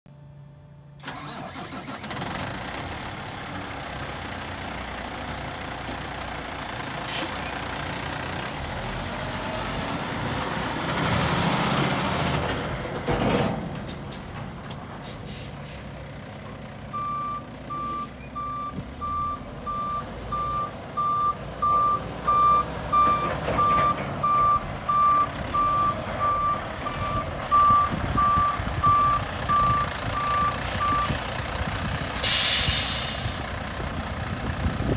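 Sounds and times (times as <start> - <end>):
diesel truck engine running: 0.2 - 34.9
back-up alarm beeping: 17.0 - 31.2
sharp hiss: 32.0 - 33.4.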